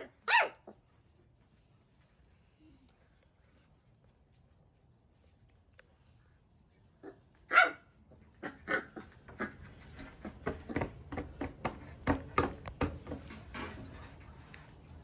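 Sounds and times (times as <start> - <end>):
puppy barking: 0.0 - 0.9, 7.0 - 10.8.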